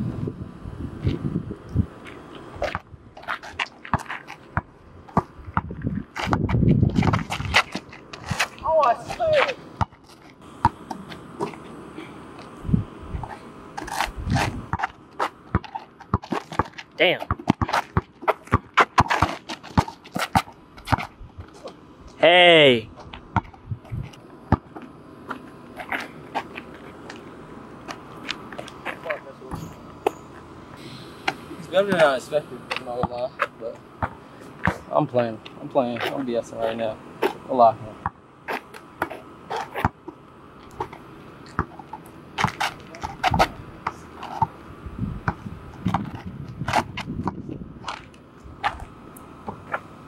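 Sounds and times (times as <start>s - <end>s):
basketball bouncing on asphalt: 2.0s - 11.8s, 13.8s - 21.6s, 23.1s - 30.6s, 31.2s - 34.9s, 38.0s - 49.9s
sneaker scuffs on pavement: 45.2s - 49.9s.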